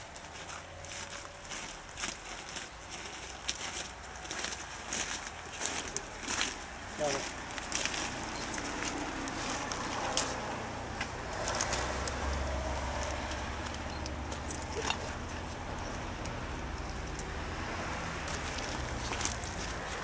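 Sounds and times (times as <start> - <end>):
small clicks and rustles: 7.5 - 10.4, 11.0 - 17.3, 18.2 - 20.0.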